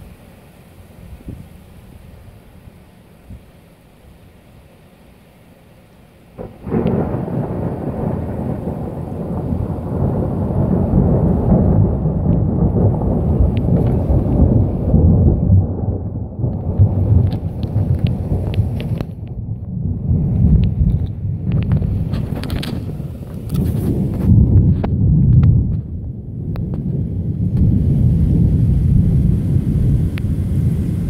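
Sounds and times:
strong wind buffeting microphone: 6.4 - 31.0.

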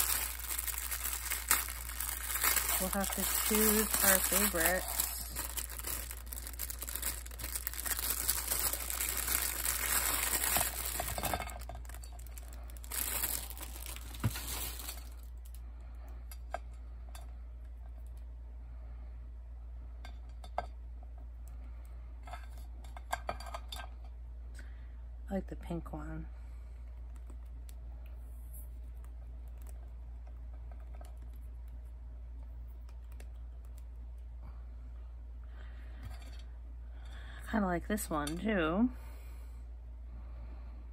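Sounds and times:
plastic bag crinkling: 0.0 - 15.6
steady low hum: 0.0 - 40.9.

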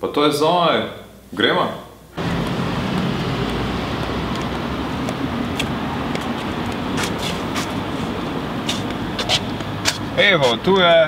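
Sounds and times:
rushing street noise: 2.2 - 11.0.

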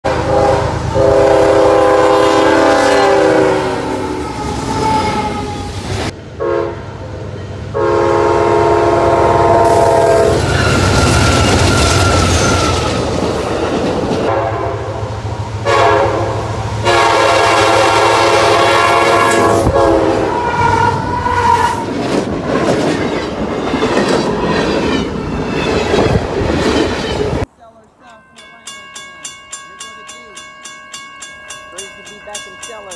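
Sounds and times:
locomotive air horn chord: 0.0 - 5.6, 6.4 - 6.8, 7.8 - 10.9, 14.3 - 21.6
freight train rumbling and clattering: 8.6 - 27.5.

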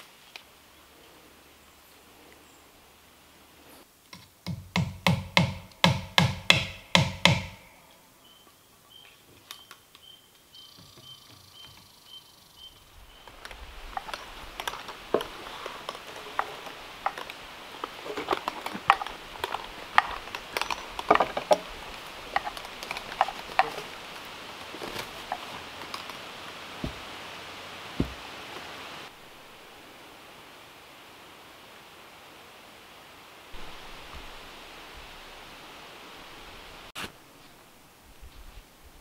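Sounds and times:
background hiss: 0.0 - 39.0
faint high chirp: 8.2 - 13.3
footsteps crunching dry leaves: 13.2 - 28.3.

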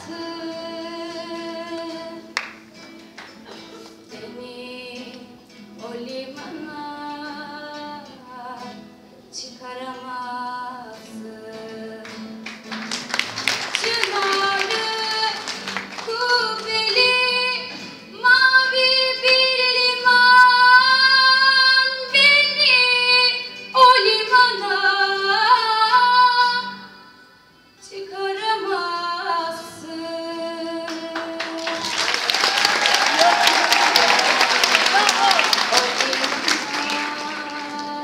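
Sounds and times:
girl singing into microphone: 0.0 - 2.4, 3.5 - 12.4, 13.7 - 32.0, 35.3 - 38.0
acoustic guitar: 0.0 - 38.0
audience applause: 12.7 - 16.7, 31.2 - 38.0.

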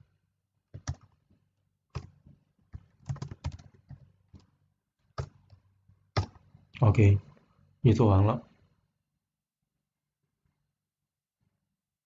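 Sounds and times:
computer keyboard typing: 0.7 - 1.2, 1.9 - 6.5.

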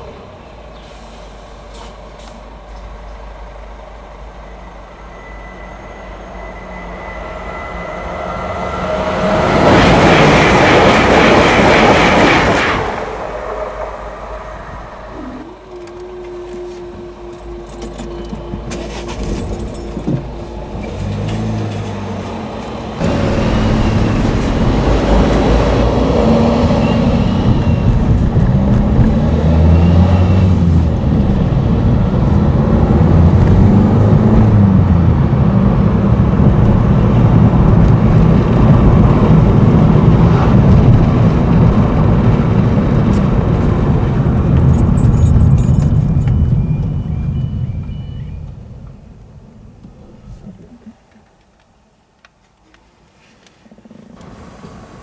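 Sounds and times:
train passing: 0.0 - 50.6
car engine accelerating: 20.6 - 50.8.

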